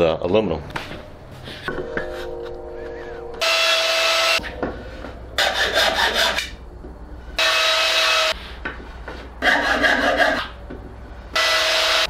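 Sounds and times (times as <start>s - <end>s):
steady tool noise: 3.4s - 6.6s, 7.3s - 10.6s.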